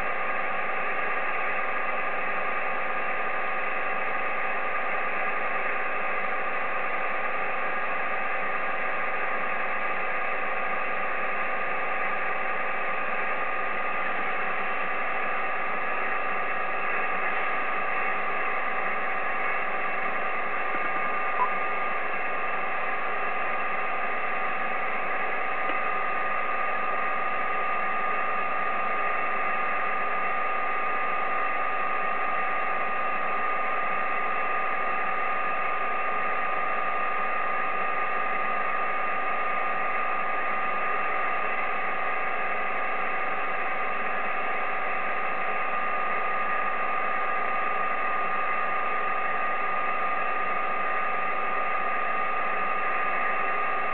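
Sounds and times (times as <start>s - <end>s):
radio static hiss: 15.6s - 27.2s.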